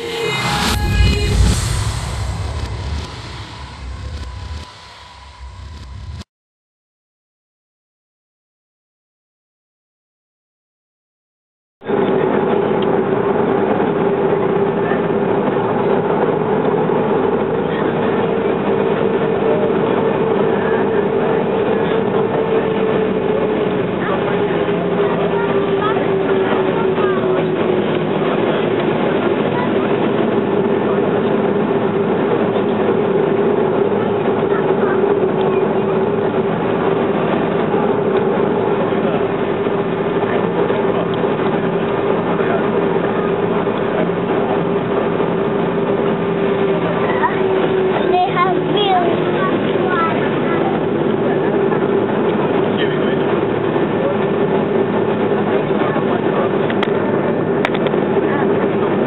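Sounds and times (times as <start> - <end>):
jet engines rumbling with whine: 0.0 - 6.2, 11.8 - 59.0
steady mid-pitched tone: 0.0 - 6.3, 11.8 - 59.0.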